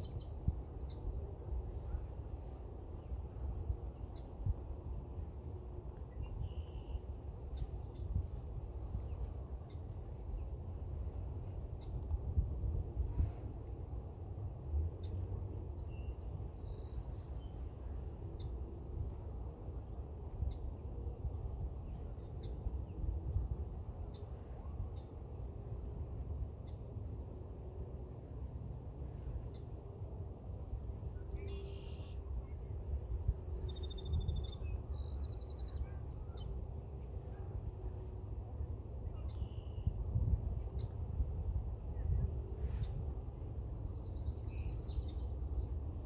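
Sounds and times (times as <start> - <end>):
insect chirping: 0.0 - 12.0, 13.1 - 45.8.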